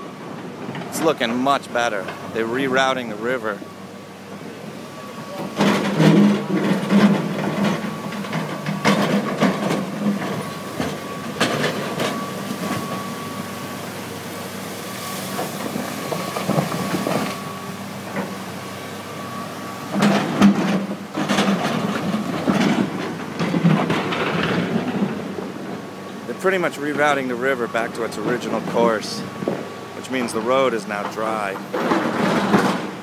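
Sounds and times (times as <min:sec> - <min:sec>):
excavator engine humming: 0:00.0 - 0:33.0
flood water rushing: 0:05.1 - 0:33.0.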